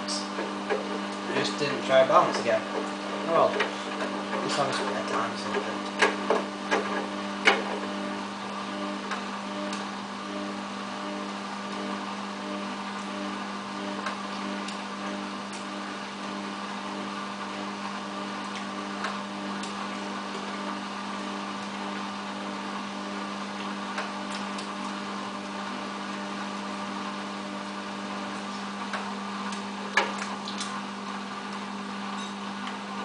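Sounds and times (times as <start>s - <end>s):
washing machine drum turning: 0.0s - 8.1s.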